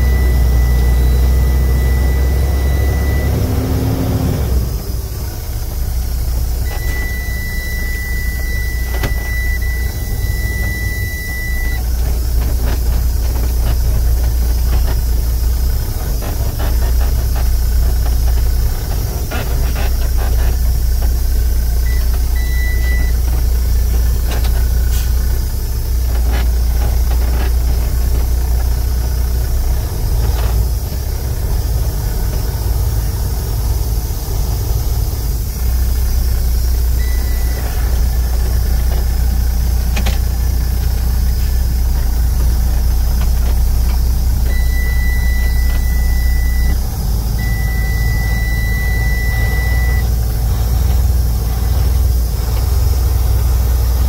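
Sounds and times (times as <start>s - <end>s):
short high-pitched beep: 0.0s - 3.6s, 6.6s - 11.8s, 21.9s - 23.3s, 37.0s - 37.9s, 44.5s - 46.8s, 47.4s - 50.1s
diesel truck engine rumble: 0.0s - 54.0s.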